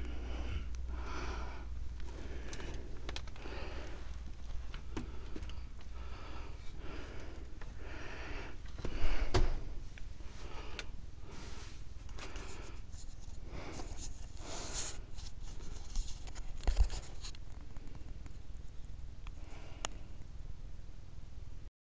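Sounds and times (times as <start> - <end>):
person breathing hard: 0.0 - 15.9, 19.4 - 20.2.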